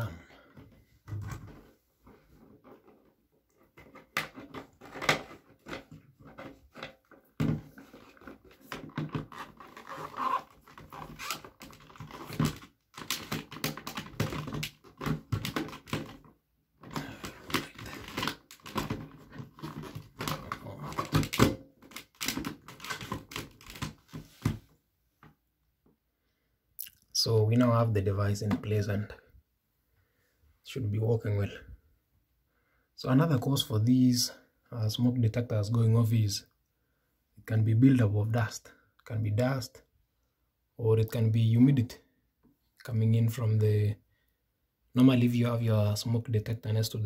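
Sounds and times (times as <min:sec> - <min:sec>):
plastic clicks and scraping: 0:02.4 - 0:24.6.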